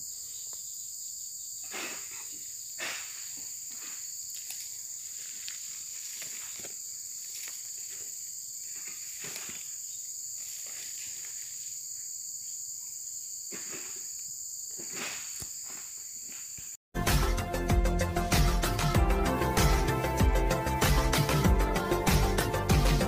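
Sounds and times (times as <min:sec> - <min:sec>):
insects shrilling: 0:00.0 - 0:16.8
music: 0:17.0 - 0:23.0.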